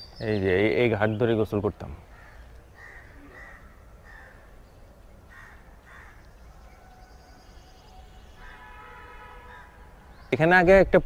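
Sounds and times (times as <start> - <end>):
crows cawing: 2.0 - 4.6, 5.2 - 7.4, 8.3 - 9.9.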